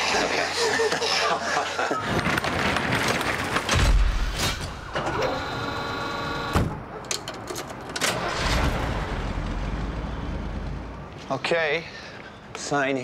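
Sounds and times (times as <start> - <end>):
roll-up door rattling down: 2.1 - 3.9.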